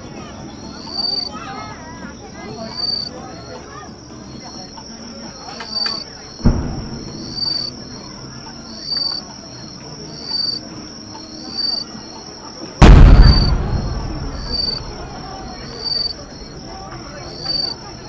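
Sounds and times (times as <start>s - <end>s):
insects chirping: 0.0s - 18.0s
firework shells bursting: 6.4s - 7.7s, 12.8s - 16.5s.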